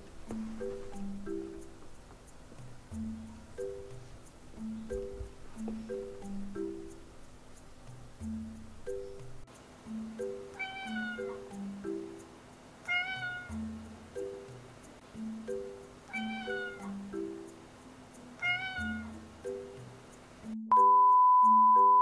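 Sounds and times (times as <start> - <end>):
light background music: 0.0 - 22.0
cat meowing: 10.6 - 11.5, 12.9 - 13.6, 16.1 - 17.0, 18.4 - 19.2.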